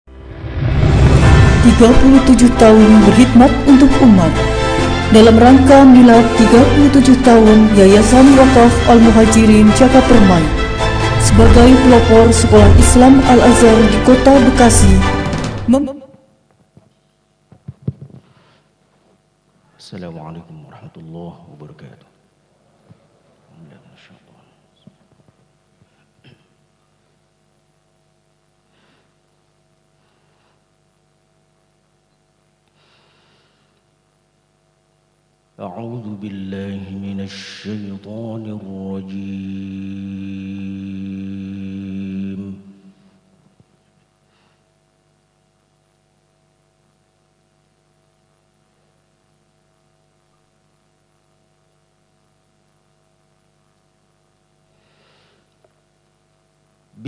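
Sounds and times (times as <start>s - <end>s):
faint steady hum: 0.1s - 57.0s
breaths into microphone: 18.1s - 18.8s, 32.7s - 33.8s, 54.7s - 55.5s.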